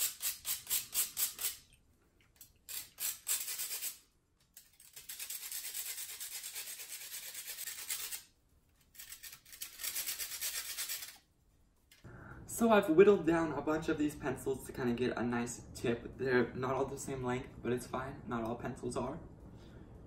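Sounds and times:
knife scraping pretzel crust: 0:04.6 - 0:08.2, 0:08.9 - 0:11.2.

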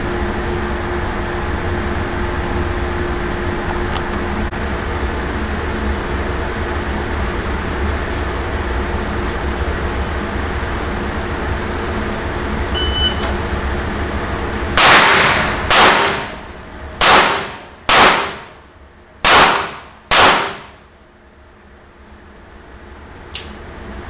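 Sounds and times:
short electronic beep: 0:12.7 - 0:13.3
handgun shots indoors: 0:14.8 - 0:21.0.

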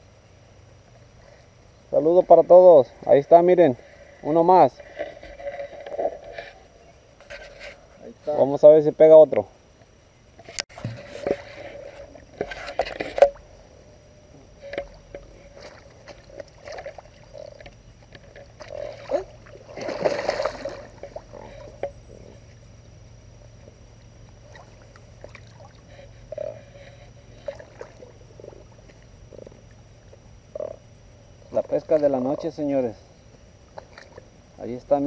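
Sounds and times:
fish splashing in water: 0:15.5 - 0:21.7.

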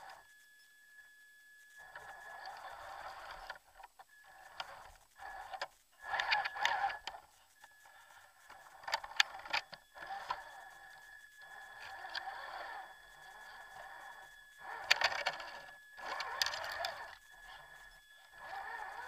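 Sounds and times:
high-pitched electronic whine: 0:00.0 - 0:19.0
motor and gear whir: 0:00.0 - 0:19.0.

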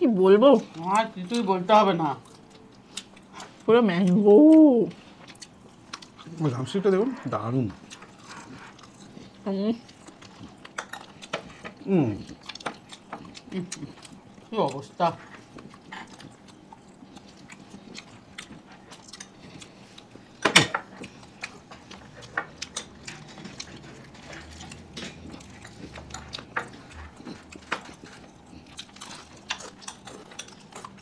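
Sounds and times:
person chewing and crunching: 0:00.5 - 0:31.0.

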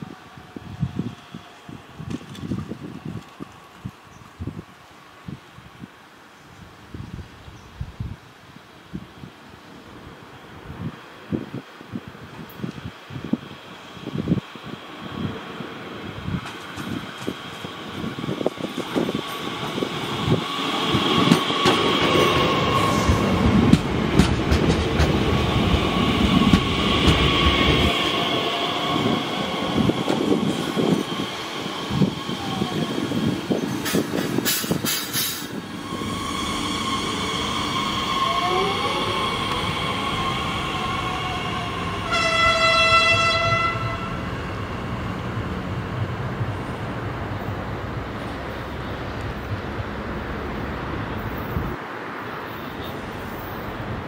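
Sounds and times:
train wheels clattering on rails: 0:16.3 - 0:28.4, 0:29.1 - 0:35.6
train horn: 0:35.8 - 0:39.6, 0:41.7 - 0:44.4.

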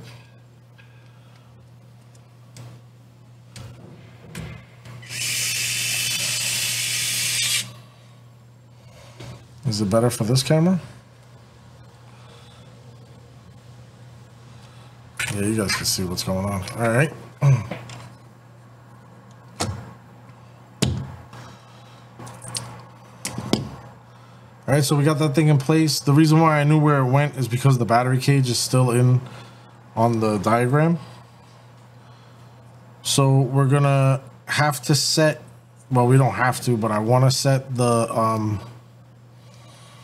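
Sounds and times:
electric screwdriver whirring: 0:05.0 - 0:07.7.

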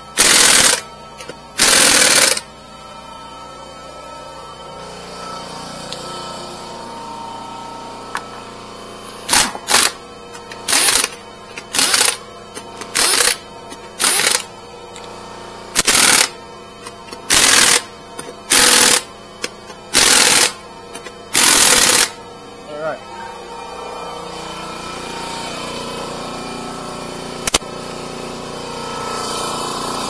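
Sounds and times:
impact wrench bursts: 0:00.1 - 0:02.5, 0:09.3 - 0:14.5, 0:15.7 - 0:22.2.

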